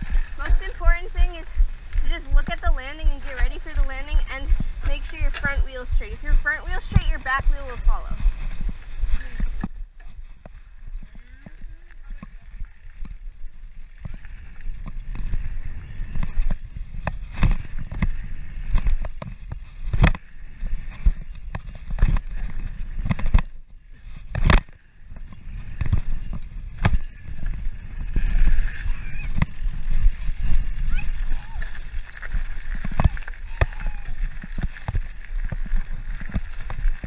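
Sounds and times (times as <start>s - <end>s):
tyres rumbling on dirt: 0.0s - 9.8s
wind on microphone: 0.0s - 11.8s, 13.9s - 37.0s
bike chain and frame rattling: 0.0s - 37.0s.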